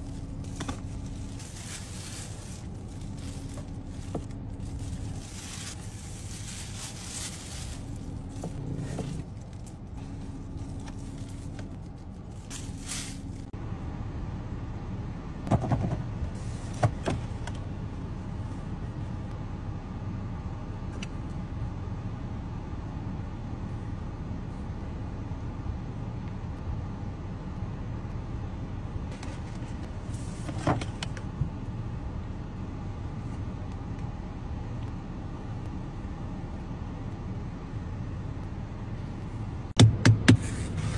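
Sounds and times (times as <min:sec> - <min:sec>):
food packaging rustling: 0:00.0 - 0:09.8, 0:10.6 - 0:13.5
car cabin rumble: 0:00.0 - 0:13.6
car engine idling hum: 0:00.0 - 0:40.9.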